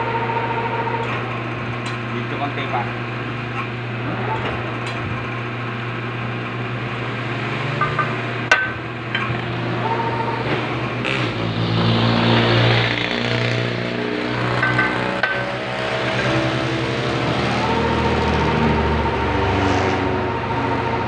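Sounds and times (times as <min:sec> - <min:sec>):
road traffic hum: 0:00.0 - 0:21.0
hammer tapping metal: 0:07.8 - 0:09.3, 0:14.4 - 0:15.7.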